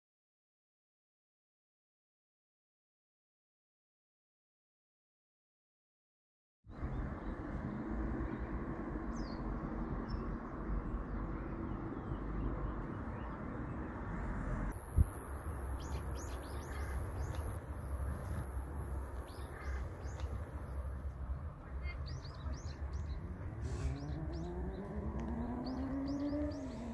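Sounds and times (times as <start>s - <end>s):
outdoor background noise: 6.7s - 26.9s
small birds chirping: 6.7s - 26.9s.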